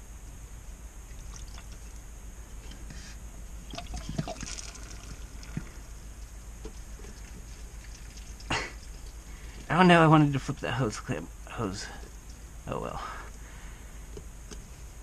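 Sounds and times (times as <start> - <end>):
liquid trickling and splashing: 1.1 - 2.0, 3.6 - 9.7.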